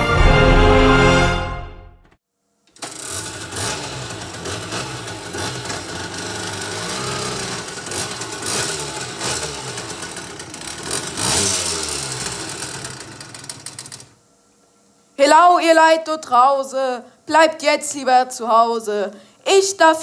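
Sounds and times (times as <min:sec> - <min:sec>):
moped engine running unevenly: 0:02.8 - 0:14.1.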